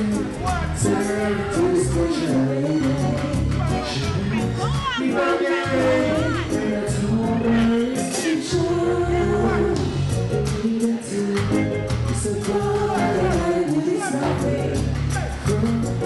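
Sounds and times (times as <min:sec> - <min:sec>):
heavy repeating bass line: 0:00.0 - 0:16.0
person singing: 0:00.0 - 0:16.0
reggae band playing: 0:00.0 - 0:16.0.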